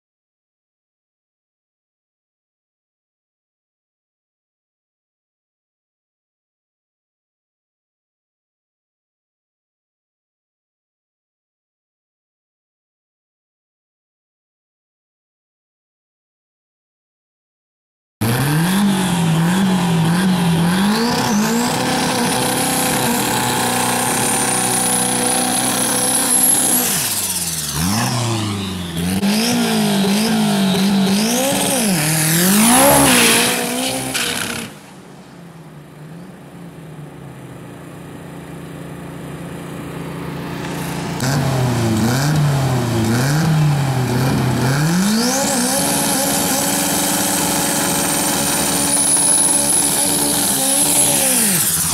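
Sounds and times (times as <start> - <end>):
car engine revving hard: 18.2 - 34.9, 40.6 - 51.9
high rising whine: 18.8 - 38.0.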